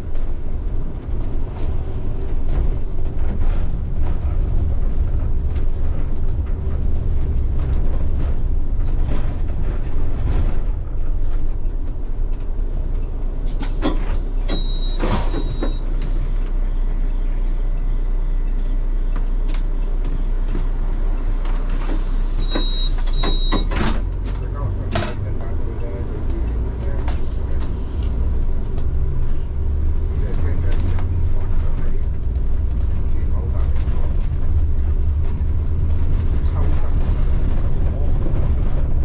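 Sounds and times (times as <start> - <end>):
bus engine rumble: 0.0 - 39.0
short high beep: 14.4 - 15.9, 22.4 - 23.7
air hiss: 21.7 - 22.5.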